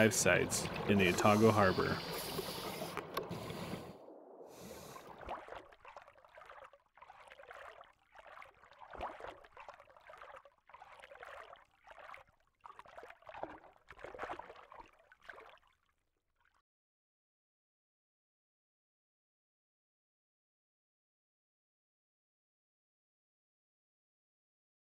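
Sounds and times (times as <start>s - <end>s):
water sloshing and gurgling: 0.0s - 16.6s.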